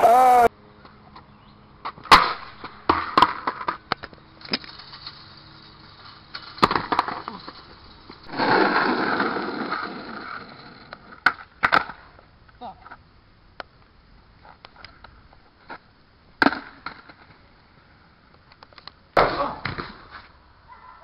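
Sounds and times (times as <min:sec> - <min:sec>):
wheels rolling over rough asphalt: 0:00.0 - 0:20.5
skateboard knocks and clatters: 0:01.9 - 0:05.1, 0:06.3 - 0:12.1.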